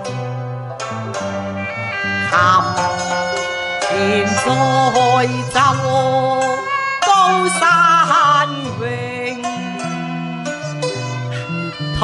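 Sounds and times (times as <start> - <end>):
instrumental accompaniment: 0.0 - 12.0
woman singing opera with vibrato: 3.9 - 9.4.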